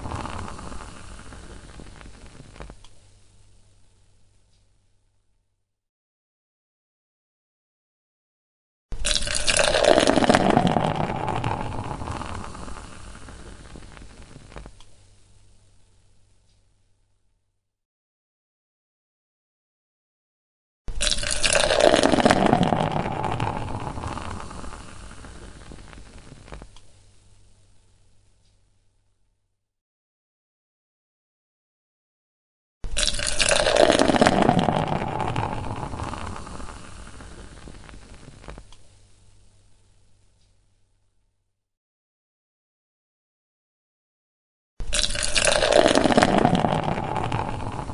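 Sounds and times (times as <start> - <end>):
beer pouring into a glass: 0.0 - 2.4, 9.0 - 14.5, 21.0 - 26.4, 32.9 - 38.6, 44.8 - 47.9
foam crackling: 0.0 - 3.1, 9.0 - 14.8, 21.0 - 26.8, 32.9 - 38.8, 44.9 - 47.9.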